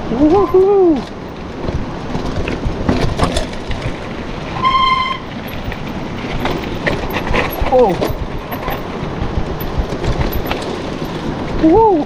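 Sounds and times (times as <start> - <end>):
mountain bike rattling over rocks: 0.0 - 11.8
brief squeal: 4.6 - 5.3.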